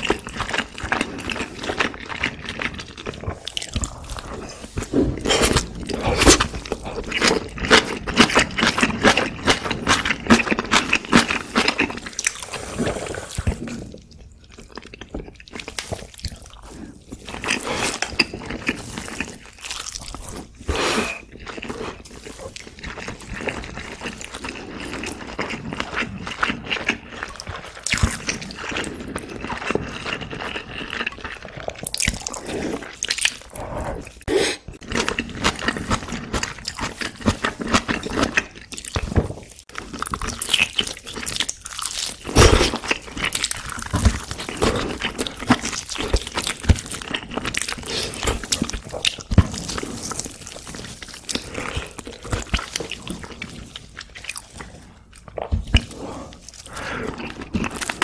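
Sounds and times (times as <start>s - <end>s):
close-miked chewing: 0.0s - 58.0s.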